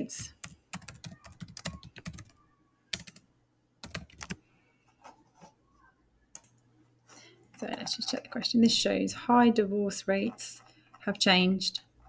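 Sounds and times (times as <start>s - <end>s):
typing on computer keyboard: 0.3s - 3.2s, 3.8s - 4.4s.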